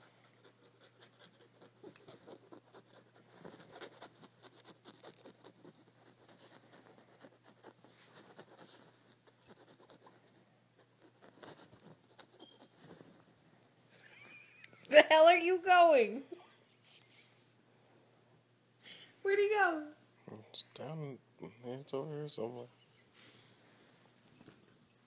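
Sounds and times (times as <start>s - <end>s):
fingers scratching fabric: 0.0s - 13.0s.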